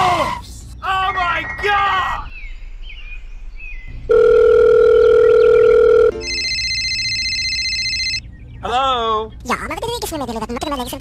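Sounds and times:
electronic beep: 4.1s - 8.2s
trilling telephone ring: 4.1s - 8.2s.

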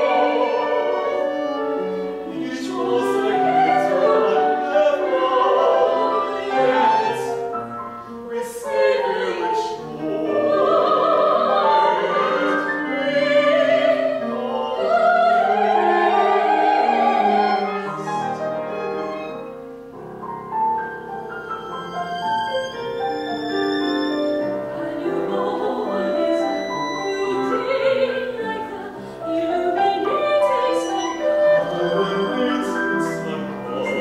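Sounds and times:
operatic singing: 0.0s - 7.5s, 8.2s - 18.4s, 24.7s - 34.0s
clarinet: 0.0s - 34.0s
piano: 0.0s - 34.0s
violin: 0.0s - 34.0s.

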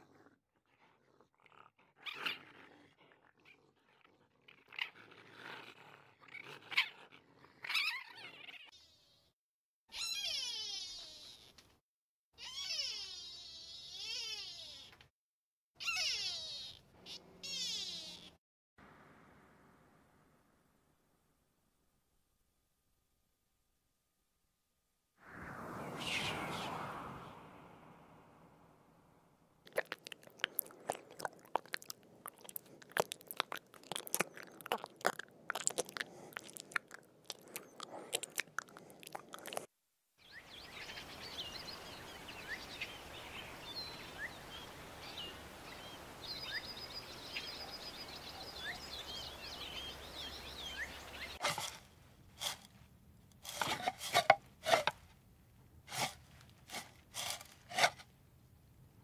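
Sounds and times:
animal chewing food: 29.7s - 39.7s
small bird chirps: 40.2s - 51.4s.

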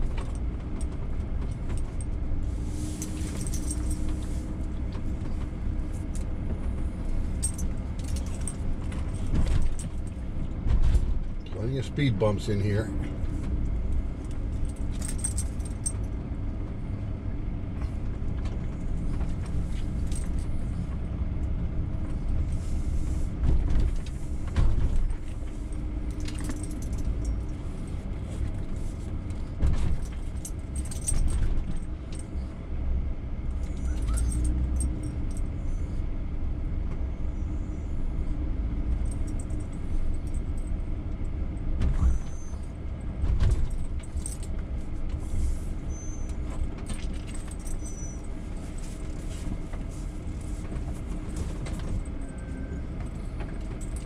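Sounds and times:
van engine and road rumble: 0.0s - 54.0s
cabin jingling and rattling: 14.4s - 16.1s, 23.6s - 27.7s.

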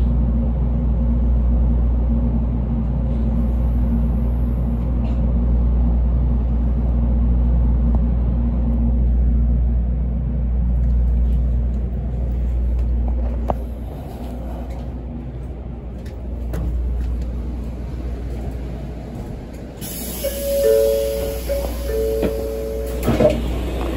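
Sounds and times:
train low rumble: 0.0s - 23.9s
hiss: 19.8s - 21.8s.

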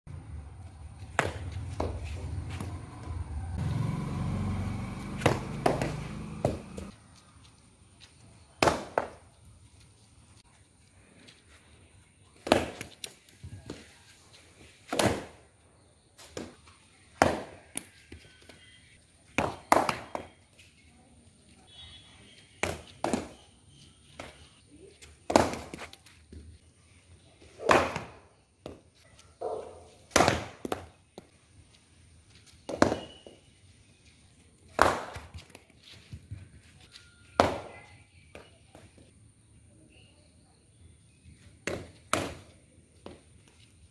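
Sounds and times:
cricket bat striking ball: 1.1s - 2.7s, 5.1s - 6.9s, 14.9s - 15.4s, 17.2s - 17.9s, 22.6s - 23.4s, 29.4s - 30.9s, 32.7s - 33.4s, 34.8s - 35.3s, 37.4s - 37.8s, 41.6s - 43.2s.

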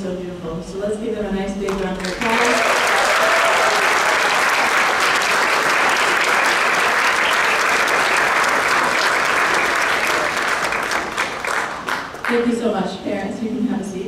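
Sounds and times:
audience applauding: 2.0s - 12.4s.

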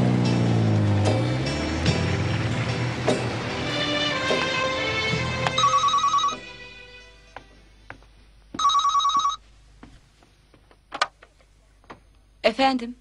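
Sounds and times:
background music: 0.0s - 7.9s
desk telephone ringing: 5.5s - 6.7s, 8.6s - 9.4s.

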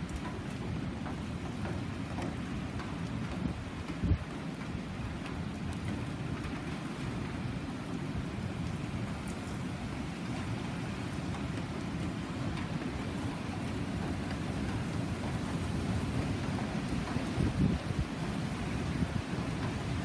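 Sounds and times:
low rumble of wind: 0.0s - 20.0s
rain on metal roof: 0.0s - 20.0s.

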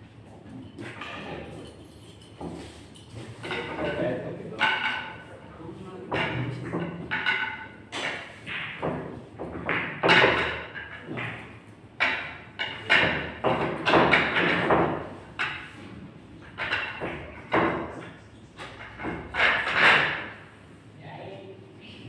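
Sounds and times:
pool balls knocking together: 3.4s - 5.3s, 6.0s - 20.6s.

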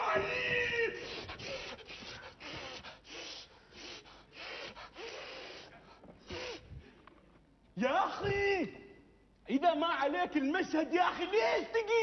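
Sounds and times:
person gasping and breathing hard: 1.0s - 7.1s.

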